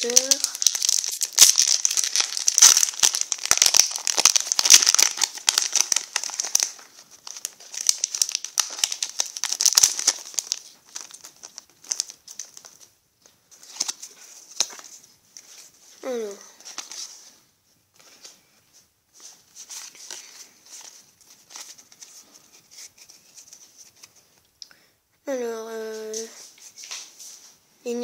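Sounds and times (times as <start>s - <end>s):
foil wrapper crinkling: 0.0s - 13.0s, 13.6s - 15.7s.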